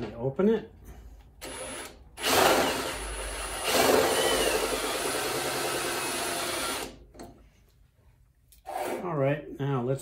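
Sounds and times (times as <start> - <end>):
cordless drill running: 1.4 - 7.0.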